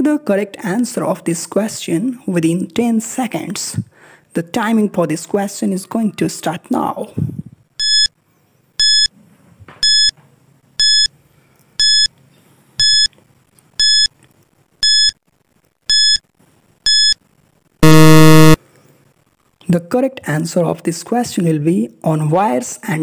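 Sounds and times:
loud low buzzer: 17.8s - 18.6s
short high beeps: 17.8s - 18.6s.

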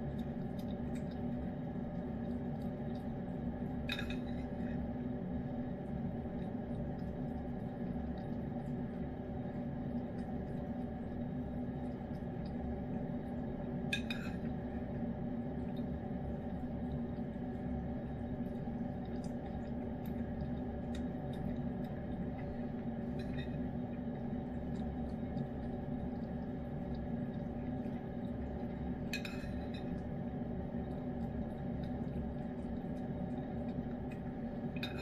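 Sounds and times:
steady hum: 0.0s - 35.0s.

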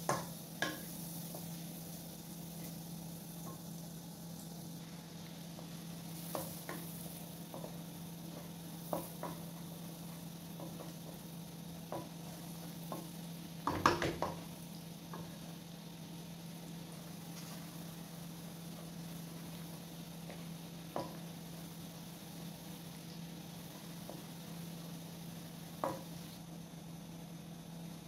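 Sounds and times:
spatula knocking on wok: 0.0s - 1.5s, 5.6s - 11.3s, 11.9s - 14.5s, 20.2s - 21.3s, 25.8s - 26.2s
spatula scraping and tapping pan: 0.0s - 1.6s, 5.2s - 14.5s, 15.1s - 15.4s, 16.9s - 18.0s, 18.7s - 21.3s, 23.6s - 24.4s, 25.8s - 26.3s
garlic sizzling in butter: 0.0s - 26.5s.

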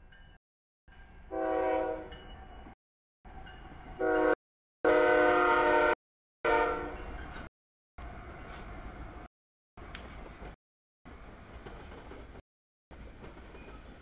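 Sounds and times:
low rumble of train: 0.0s - 14.0s
diesel locomotive horn blasts: 1.3s - 2.2s, 4.0s - 7.1s.

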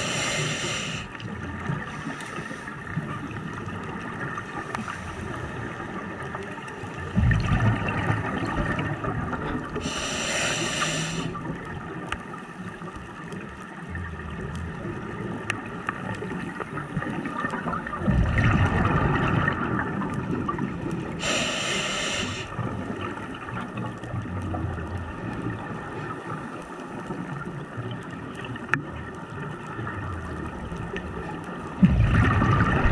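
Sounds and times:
regulator inhalation hiss: 0.0s - 1.2s, 9.8s - 11.4s, 21.2s - 22.5s
exhaled bubbles rumbling: 5.3s - 10.2s, 13.3s - 21.2s, 27.2s - 32.9s.

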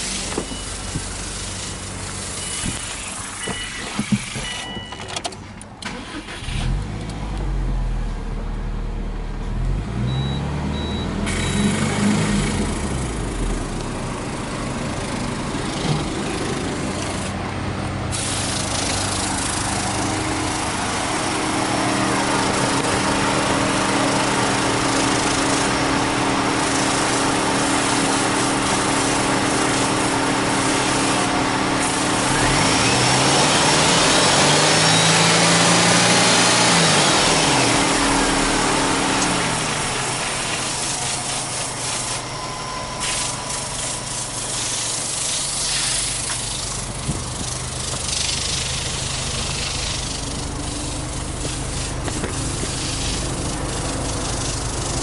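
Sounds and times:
car engine idling and revving: 0.0s - 55.0s.

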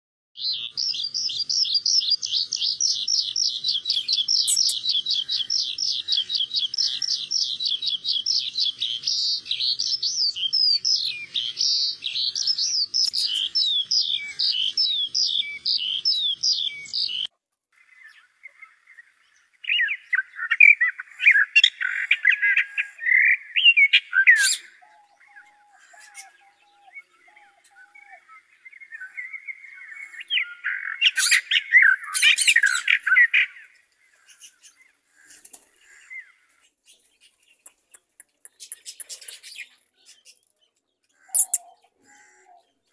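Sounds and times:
high bird trill: 0.4s - 17.3s, 17.9s - 36.5s, 37.2s - 40.5s, 41.1s - 42.8s
scratchy bird warbling: 3.9s - 5.5s, 37.6s - 40.4s, 41.2s - 42.6s.

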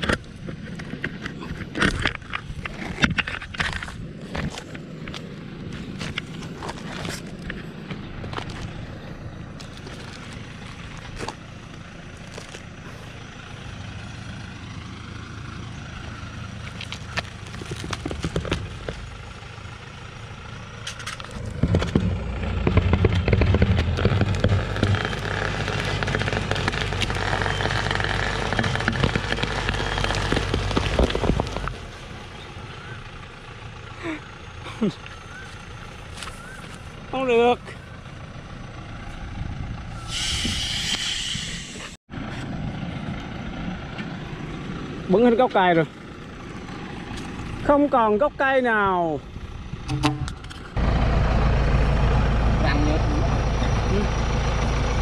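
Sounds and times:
diesel truck engine revving: 4.8s - 55.0s
sharp cracks of stump: 20.9s - 31.8s.

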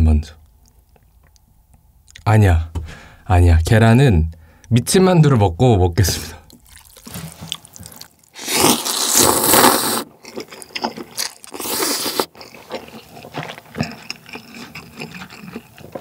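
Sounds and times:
chewing: 6.5s - 16.0s
noodles slurped: 6.5s - 16.0s.

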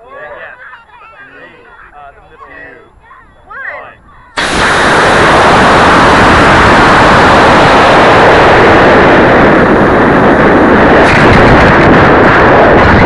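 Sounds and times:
air rushing over microphone: 4.4s - 13.0s
rocket exhaust roar: 4.4s - 13.0s
rocket motor igniting: 4.4s - 13.0s.

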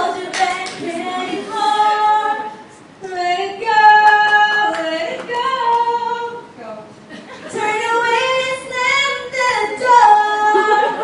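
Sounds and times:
women singing unaccompanied: 0.0s - 6.9s, 7.5s - 11.0s.

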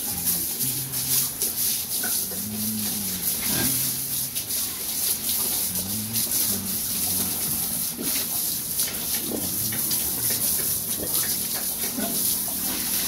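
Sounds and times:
hose spraying water on concrete: 0.0s - 13.0s
pigs grunting: 0.0s - 13.0s.

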